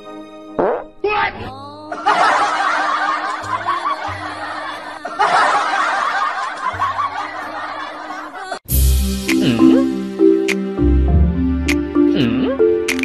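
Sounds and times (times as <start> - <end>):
background music with low notes: 0.0 - 13.0
canned laughter: 1.9 - 8.6.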